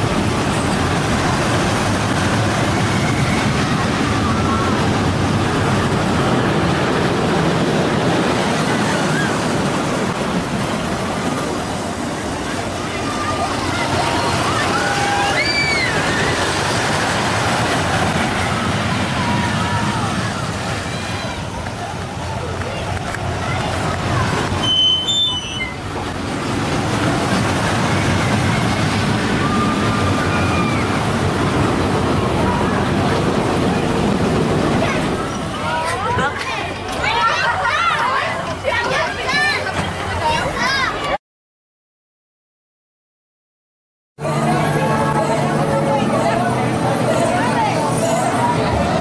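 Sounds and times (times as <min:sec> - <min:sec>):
roller coaster on steel track: 0:00.0 - 0:41.2, 0:44.2 - 0:49.0
high squeal: 0:24.6 - 0:25.8.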